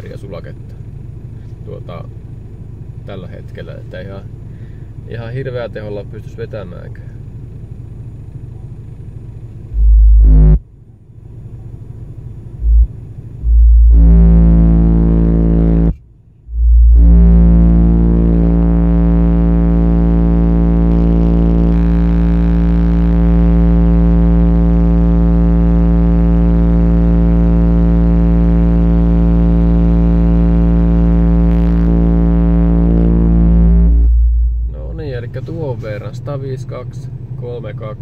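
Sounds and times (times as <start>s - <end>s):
subwoofer low test tone: 9.4s - 10.8s, 12.4s - 36.5s.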